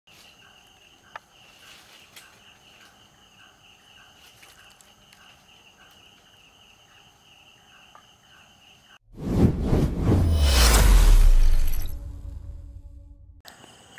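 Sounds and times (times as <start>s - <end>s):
crickets trilling: 0.1s - 9.0s, 13.4s - 13.9s
lower insect chirp: 0.1s - 9.0s, 13.4s - 13.9s.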